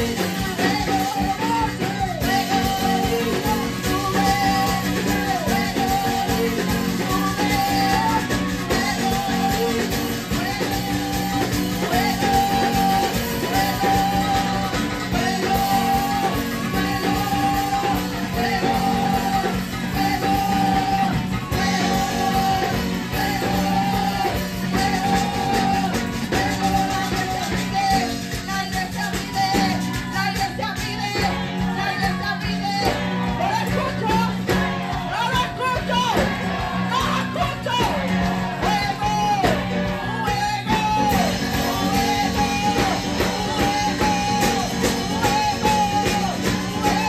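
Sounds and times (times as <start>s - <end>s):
women singing into microphones: 0.0s - 35.3s
electric guitar: 0.0s - 47.0s
maracas shaking: 0.0s - 47.0s.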